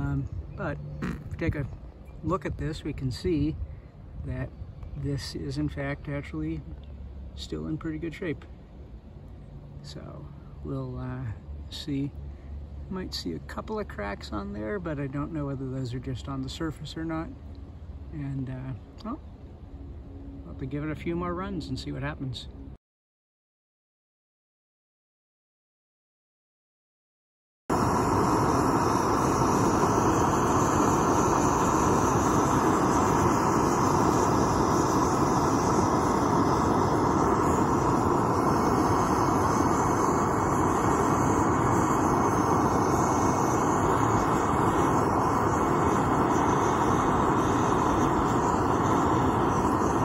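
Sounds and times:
torch flame rushing: 27.7 - 50.0.

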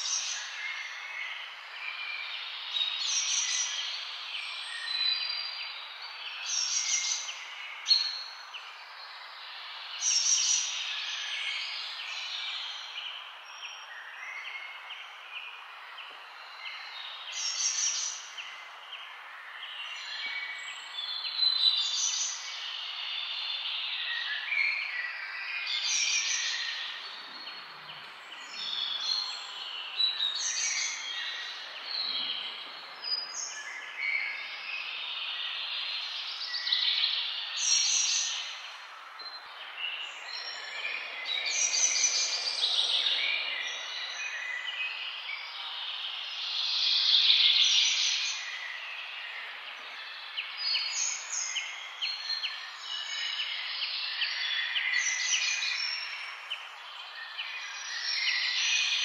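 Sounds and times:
birds chirping and calling: 36.7 - 45.9.

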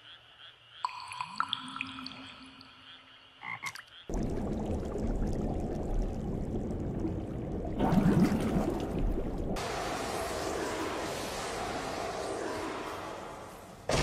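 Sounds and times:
underwater rumble with bubbles: 4.1 - 10.9.

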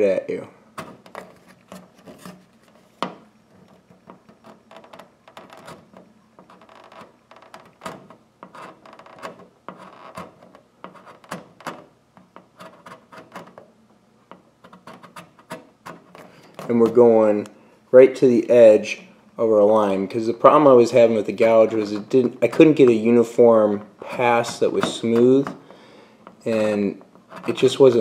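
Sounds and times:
scraper scraping plastic: 0.8 - 11.8, 26.4 - 28.0.

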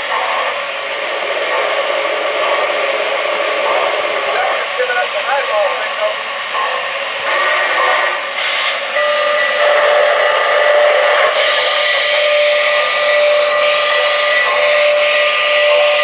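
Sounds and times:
model locomotive steam hissing: 0.0 - 16.0
long steady train whistle: 6.8 - 16.0.

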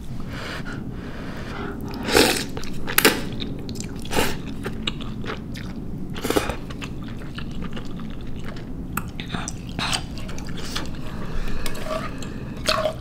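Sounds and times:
slurping noodles: 1.3 - 2.8
chewing: 1.6 - 13.0.

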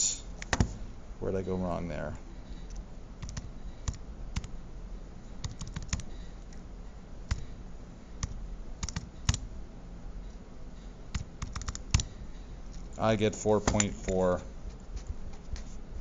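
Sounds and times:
calculator keys clicking: 3.2 - 4.5, 5.4 - 6.1, 8.2 - 9.4, 11.2 - 12.1.

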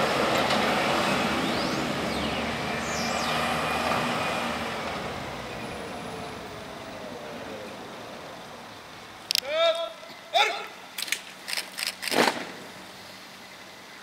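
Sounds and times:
motor vehicle driving past: 0.0 - 8.6.

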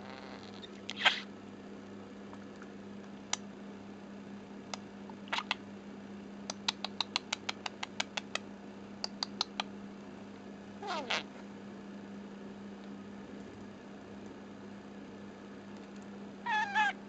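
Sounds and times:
faint steady hum: 0.0 - 17.0
budgie beak clicks and taps: 6.5 - 9.7.

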